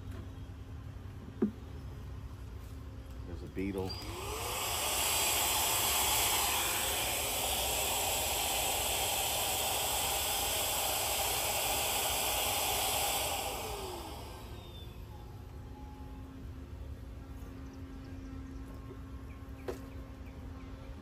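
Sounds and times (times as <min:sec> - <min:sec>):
cordless vacuum running: 0:03.6 - 0:15.8.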